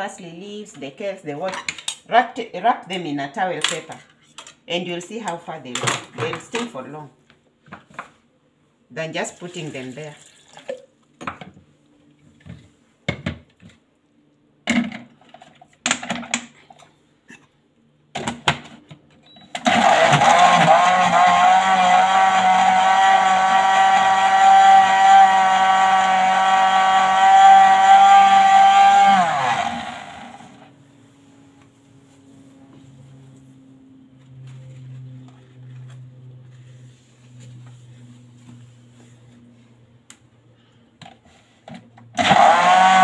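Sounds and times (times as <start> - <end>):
blender motor running: 19.6 - 30.7, 42.2 - 43.0.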